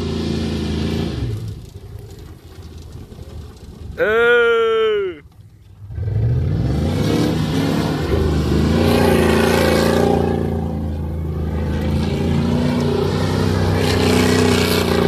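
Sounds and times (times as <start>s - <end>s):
truck engine revving hard: 0.0s - 1.6s, 5.9s - 15.0s.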